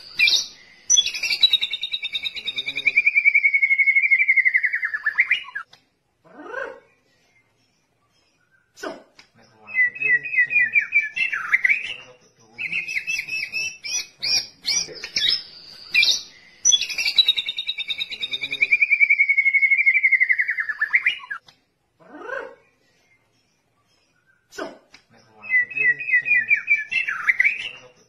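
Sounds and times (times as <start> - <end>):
bird singing trills: 0.0 - 5.7, 9.4 - 21.4, 25.1 - 28.0.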